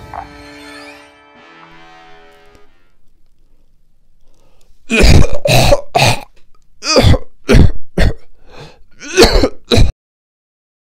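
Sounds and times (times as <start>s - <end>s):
person coughing harshly: 4.9s - 8.3s, 9.0s - 10.0s.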